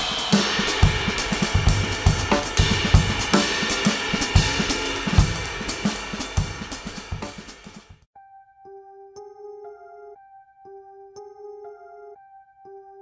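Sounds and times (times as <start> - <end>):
music with drum kit beat: 0.0 - 8.1.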